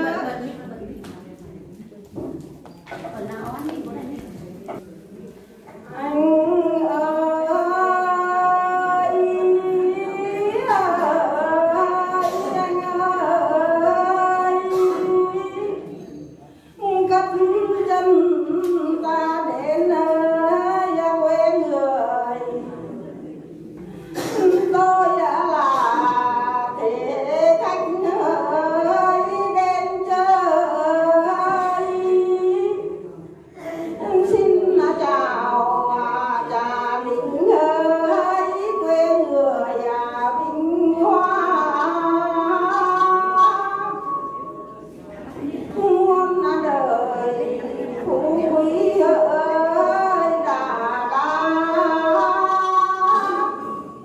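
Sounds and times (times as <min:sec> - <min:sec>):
woman singing folk song: 0:45.6 - 0:53.9.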